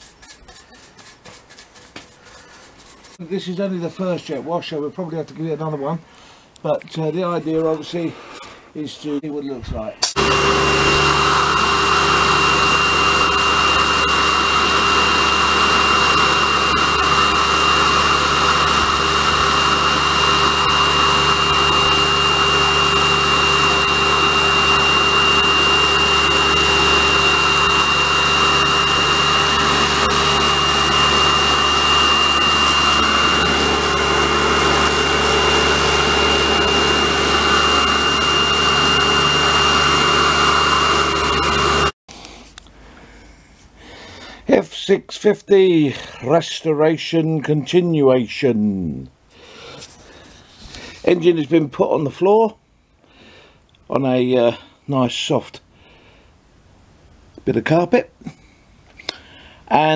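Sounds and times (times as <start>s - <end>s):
pressure washer whining: 10.0s - 42.0s.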